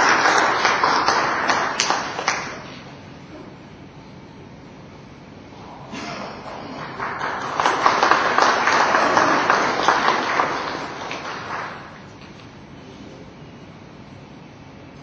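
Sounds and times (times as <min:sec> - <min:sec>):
audience applauding: 0:00.0 - 0:02.7, 0:06.0 - 0:12.2.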